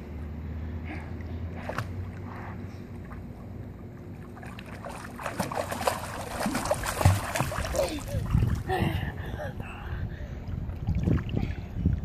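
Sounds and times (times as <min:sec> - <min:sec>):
steady low hum: 0:00.0 - 0:12.0
child splashing in pool water: 0:04.4 - 0:08.7.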